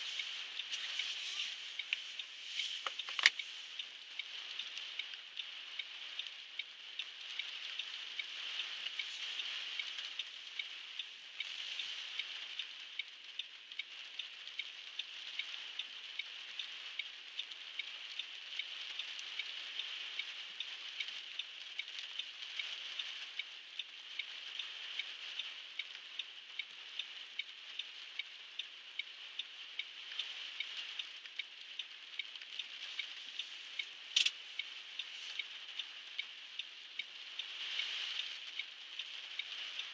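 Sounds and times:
heavy rain on car roof: 0.0s - 39.9s
car indicator ticking: 1.8s - 3.4s
sharp click: 34.2s - 34.4s.

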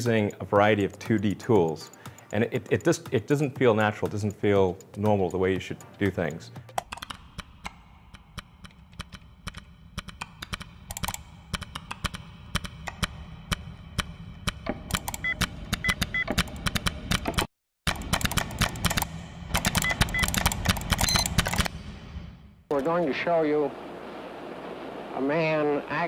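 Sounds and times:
mouse and keyboard clicking: 0.0s - 21.7s
short high beeps: 21.0s - 21.3s.

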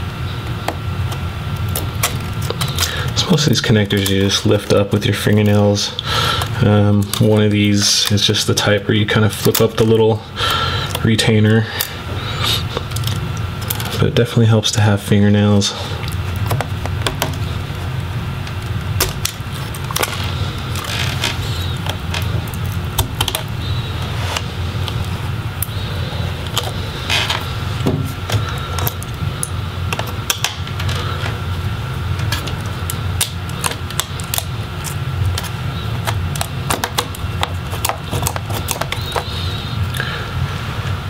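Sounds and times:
steady low hum: 0.0s - 41.0s
fingers clicking and tapping plastic: 35.3s - 39.3s.

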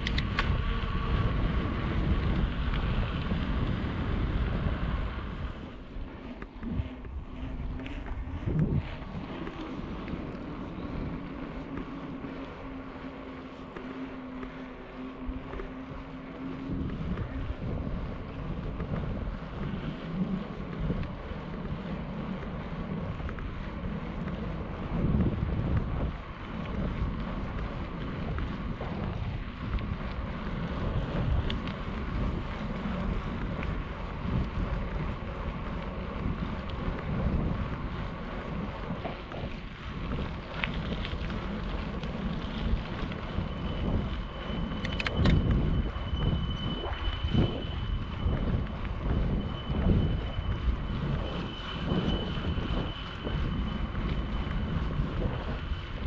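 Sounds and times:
bicycle tyres rolling on asphalt: 0.0s - 56.0s
steady low hum: 0.0s - 56.0s
wind buffeting the microphone: 0.0s - 56.0s
faint ticks: 6.3s - 56.0s.

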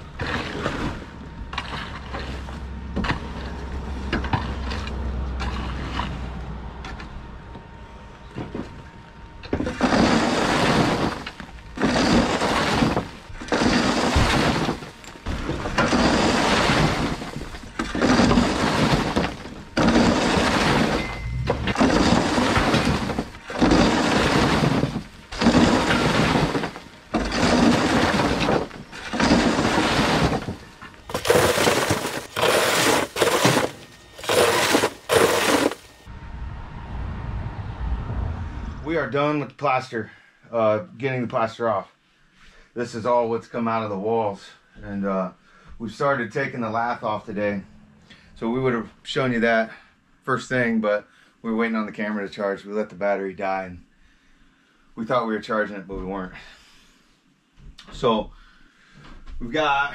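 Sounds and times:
rubble crashing down debris chute: 9.6s - 36.0s.

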